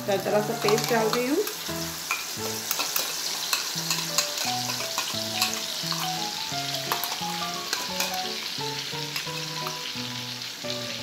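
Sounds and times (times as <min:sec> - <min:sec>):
paste sizzling in hot oil: 0:00.0 - 0:11.0
steel spoon scraping and clicking: 0:00.6 - 0:06.1.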